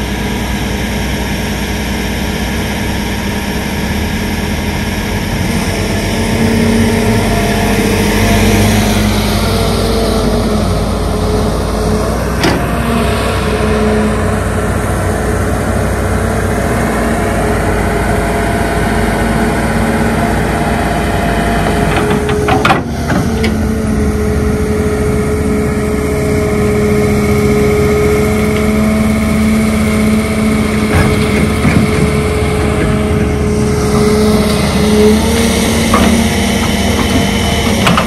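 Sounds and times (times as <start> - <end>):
diesel engine running: 0.0 - 38.0
knocks and clatter: 21.7 - 23.6, 30.8 - 34.1, 35.8 - 38.0.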